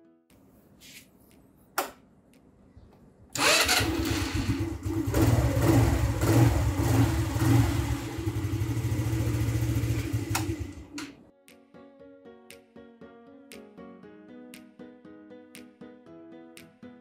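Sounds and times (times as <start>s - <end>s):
scooter engine idling: 3.4s - 11.0s
starter click: 10.2s - 11.2s.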